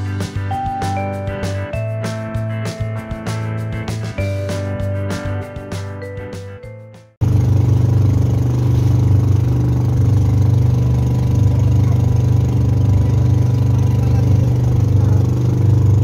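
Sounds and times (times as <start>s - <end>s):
boat engine droning: 7.2s - 16.0s.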